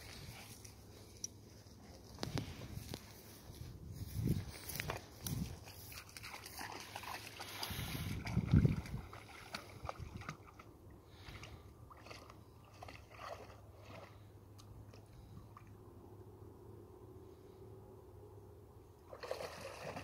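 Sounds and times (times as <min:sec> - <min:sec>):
dog splashing in water: 0:05.6 - 0:10.6, 0:11.9 - 0:14.2, 0:19.1 - 0:20.0.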